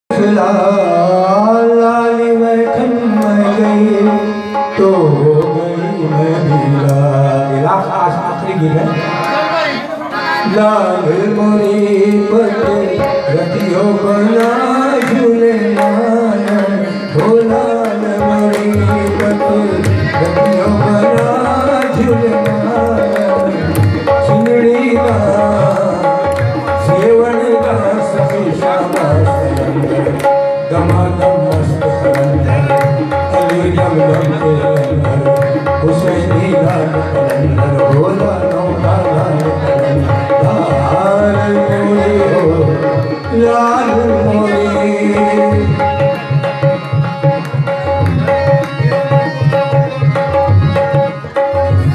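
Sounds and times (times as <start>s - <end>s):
harmonium sustained notes: 0.1s - 51.9s
man singing: 0.1s - 51.9s
tabla rhythm: 0.1s - 51.9s.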